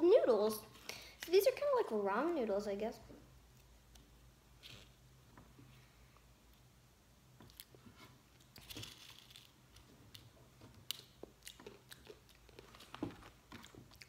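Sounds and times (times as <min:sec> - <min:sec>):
plastic snack packet crinkling: 0:08.4 - 0:13.4.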